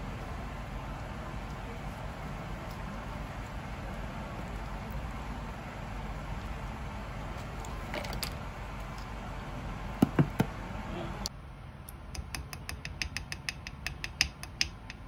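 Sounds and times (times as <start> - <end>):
plastic spoon knocking on bowl: 12.2 - 15.0.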